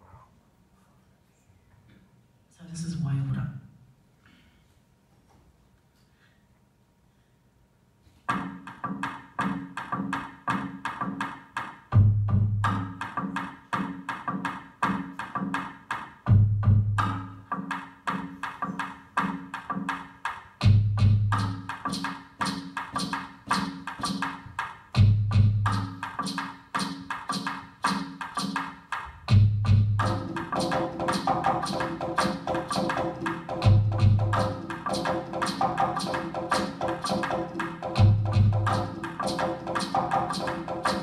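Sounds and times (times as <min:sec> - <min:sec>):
quick clicking beat: 0:08.3 - 0:12.0, 0:12.6 - 0:16.4, 0:17.0 - 0:41.0.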